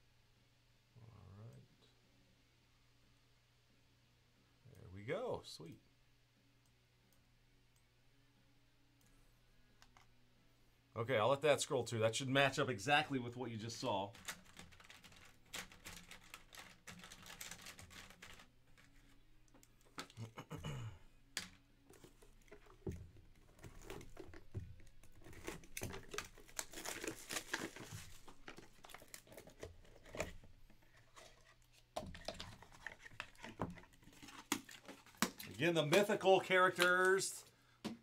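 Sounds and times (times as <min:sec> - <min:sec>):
plastic shrink-wrap tearing: 0:14.1 - 0:19.2, 0:23.5 - 0:30.4.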